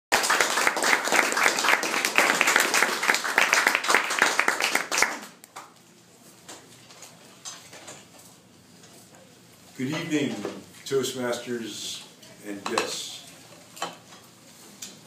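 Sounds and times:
audience applauding: 0.1 - 5.5.

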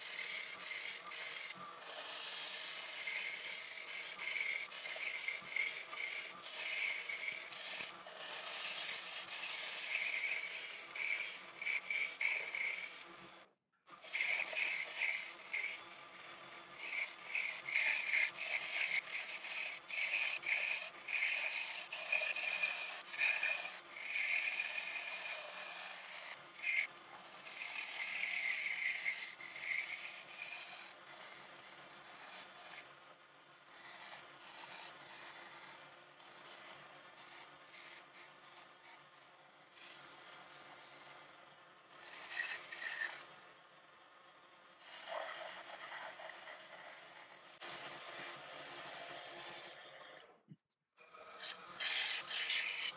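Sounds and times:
chisel scraping wood on lathe: 0.0 - 13.2, 14.0 - 32.9, 33.6 - 41.2, 41.9 - 43.3, 44.8 - 50.3, 51.2 - 52.9.

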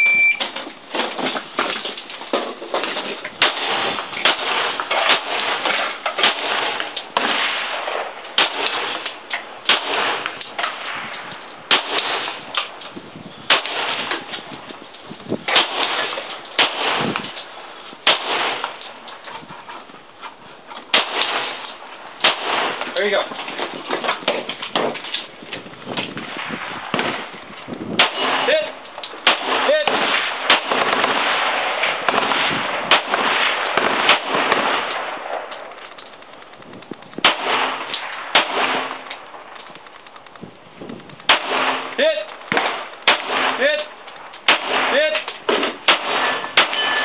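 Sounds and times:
pistol shots: 3.4 - 12.8, 13.4 - 14.5, 15.5 - 19.0, 20.9 - 25.0, 26.2 - 36.6, 37.2 - 39.9, 41.2 - 47.0.

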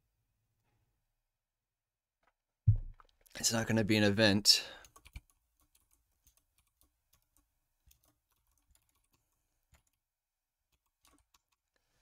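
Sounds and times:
faint keyboard typing: 4.8 - 11.9.

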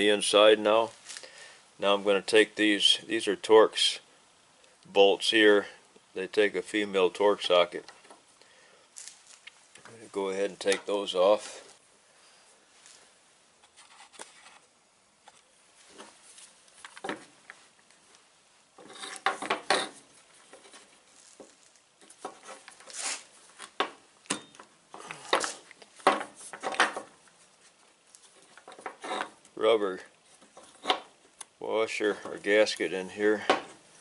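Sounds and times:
metal parts scraping and clicking: 18.8 - 20.9.

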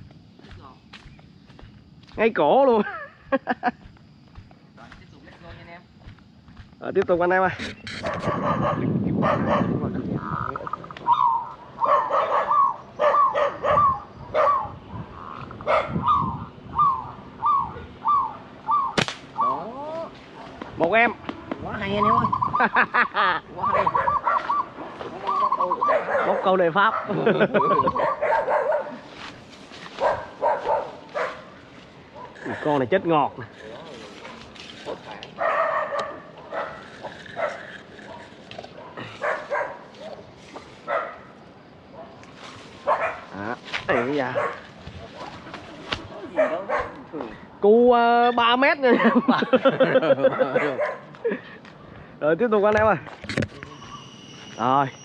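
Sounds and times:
dog barking: 8.0 - 9.8, 11.1 - 14.8, 15.6 - 16.2, 23.6 - 24.7, 25.7 - 29.1, 30.0 - 31.6, 32.2 - 32.4, 34.2 - 40.2, 40.8 - 42.2, 42.8 - 44.7, 46.1 - 47.1, 48.9 - 49.3, 50.2 - 51.1.

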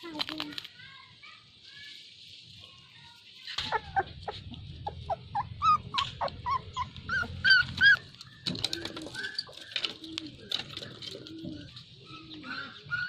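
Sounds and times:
puppy whimpering and yipping: 3.6 - 8.4.

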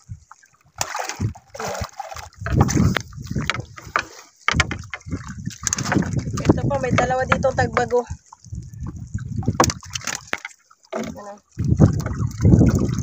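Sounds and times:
water splashing and sloshing: 0.0 - 13.0
low rumbling knocks: 2.4 - 8.0.

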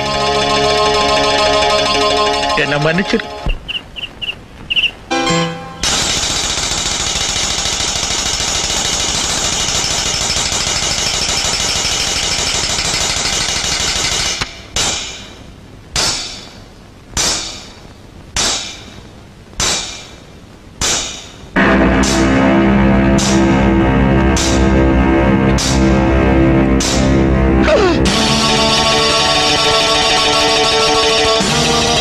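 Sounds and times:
sharp single hits: 20.8 - 28.2.

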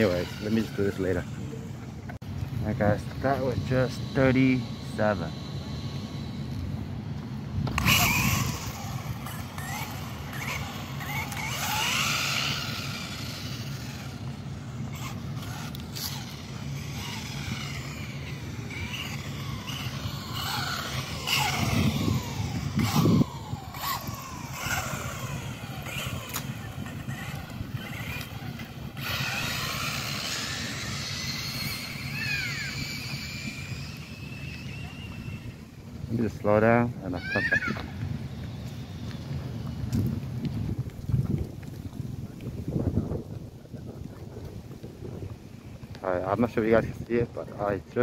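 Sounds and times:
steady low rumble: 0.0 - 37.1
rc car motor whining: 0.0 - 40.2.

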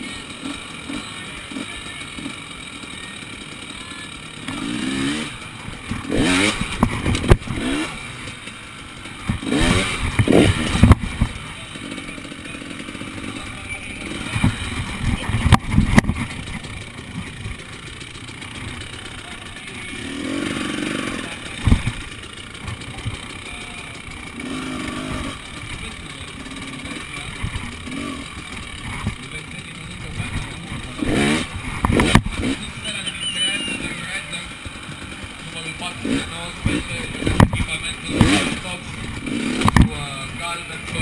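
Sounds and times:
motorcycle engine revving: 0.0 - 41.0
bike knocking on logs: 14.3 - 17.6, 21.6 - 23.3.

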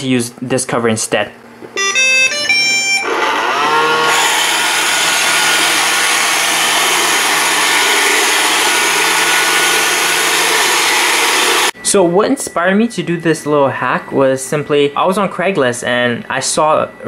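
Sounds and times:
robot vacuum motors whining: 2.8 - 11.7.

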